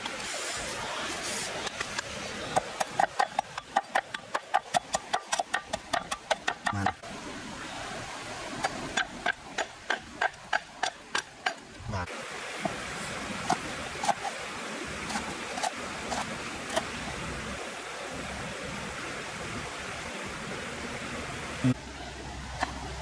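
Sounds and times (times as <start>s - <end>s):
steady background hiss: 0.0s - 23.0s
cleaver chopping on wooden board: 2.6s - 7.0s.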